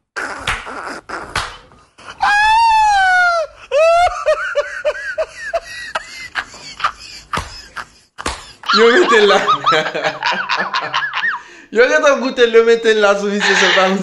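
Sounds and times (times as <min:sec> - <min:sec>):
sharp smacks: 0:00.2 - 0:01.8, 0:08.2 - 0:08.5
man laughing high-pitched: 0:02.0 - 0:11.5, 0:13.4 - 0:14.0
shrieking squeal: 0:13.4 - 0:14.0.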